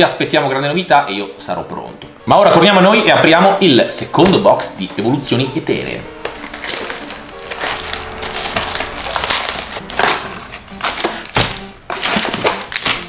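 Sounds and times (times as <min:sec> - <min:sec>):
cardboard packaging crinkling: 0:06.1 - 0:13.0.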